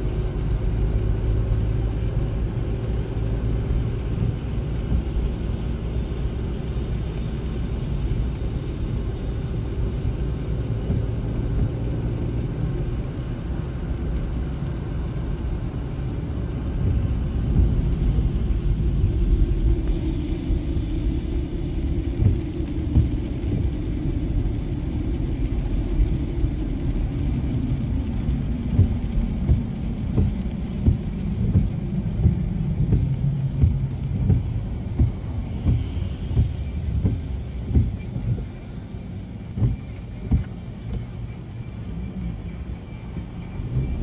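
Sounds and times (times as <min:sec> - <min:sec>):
car engine and road rumble: 0:00.0 - 0:44.0.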